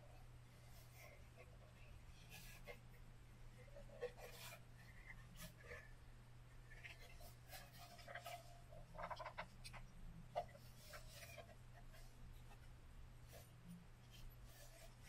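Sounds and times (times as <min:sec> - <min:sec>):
faint handling noise: 0:06.6 - 0:15.0.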